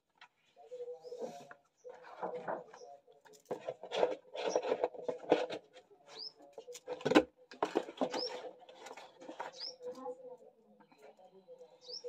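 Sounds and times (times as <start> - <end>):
bird chirping: 6.1 - 6.5, 9.3 - 10.2, 10.8 - 12.0.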